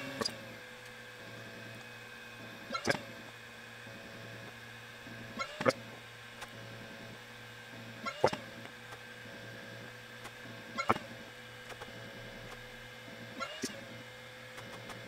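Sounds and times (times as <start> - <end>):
laser engraver motor hum: 0.0 - 15.0
gantry whir-click: 8.0 - 15.0.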